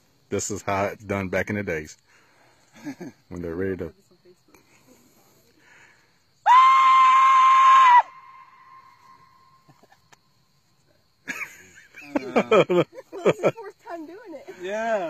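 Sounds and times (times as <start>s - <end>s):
loud shrill yell: 6.4s - 9.0s
voices: 8.1s - 15.0s.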